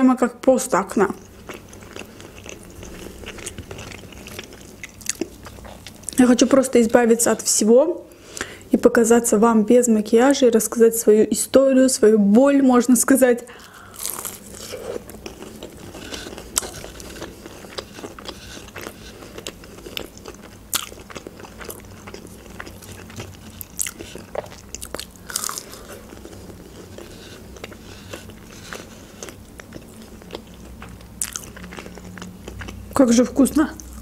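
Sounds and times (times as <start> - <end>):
person chewing crunchy food: 1.1 - 6.2, 13.5 - 33.0.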